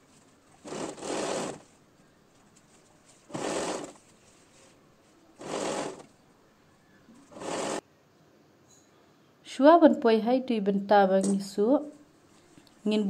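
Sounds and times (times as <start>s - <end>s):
sewing machine stitching: 0.6s - 1.7s, 3.3s - 4.1s, 5.4s - 6.1s, 7.3s - 7.8s.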